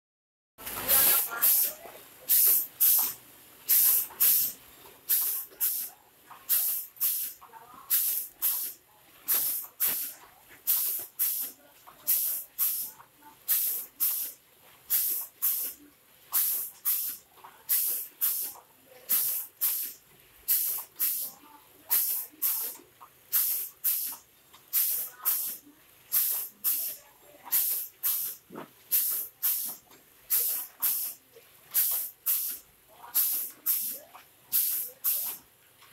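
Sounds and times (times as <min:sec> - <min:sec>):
compressed air hisses: 0:01.0 - 0:05.9, 0:06.5 - 0:32.6, 0:33.2 - 0:35.4.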